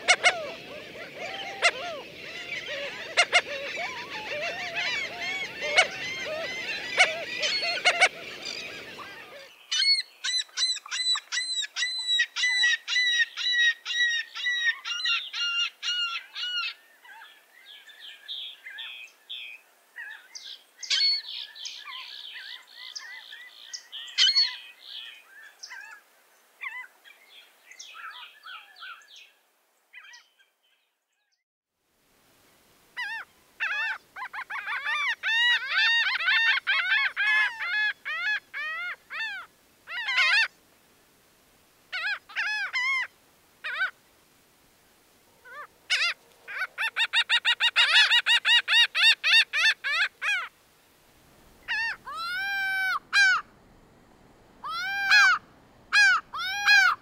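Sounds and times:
gulls calling: 0.0 - 16.8, 51.6 - 53.5, 54.6 - 57.0.

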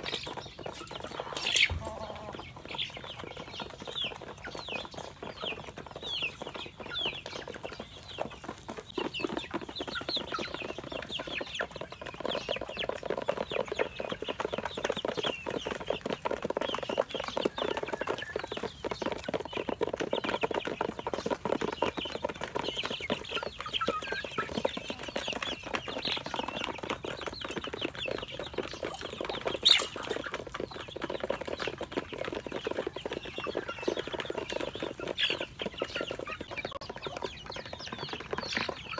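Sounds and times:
chicks peeping: 0.0 - 38.9.

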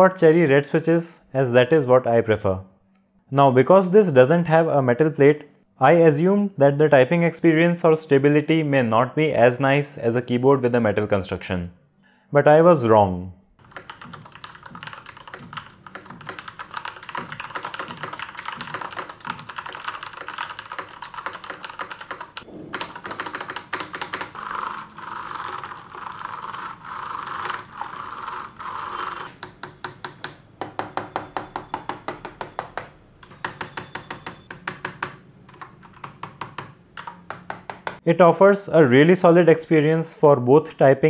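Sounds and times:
mechanical keyboard typing: 13.6 - 38.0.

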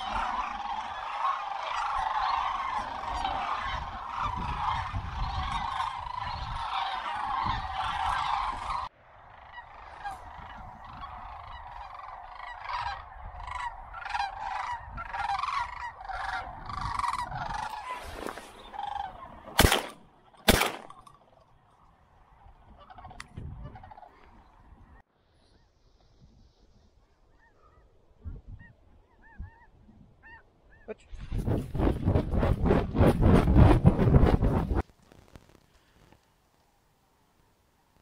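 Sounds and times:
cranes calling: 0.0 - 25.8
shotgun shots: 19.6 - 21.0.

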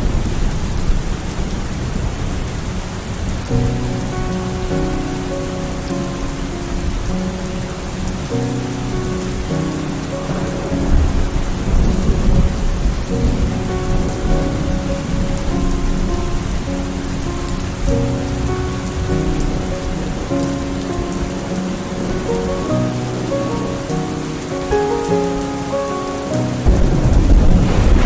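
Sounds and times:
heavy rain pouring: 0.0 - 28.0
thunder rumble: 0.0 - 28.0.

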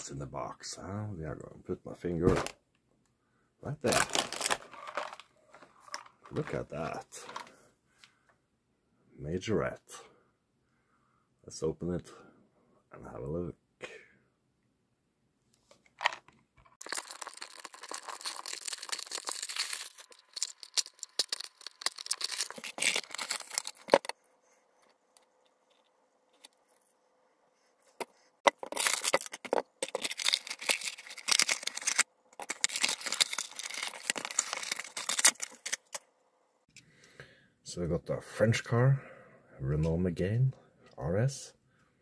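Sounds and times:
packaging tearing and crinkling: 3.9 - 5.2, 16.8 - 24.1, 28.5 - 36.0.

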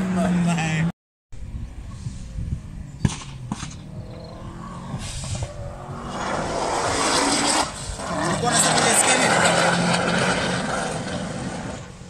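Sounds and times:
distant car engine: 2.9 - 12.0
rushing noise: 4.3 - 12.0.

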